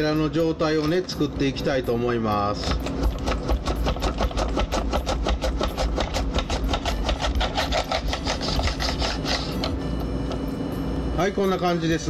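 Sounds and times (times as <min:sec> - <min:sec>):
potato sliced on mandoline: 0:02.6 - 0:09.8.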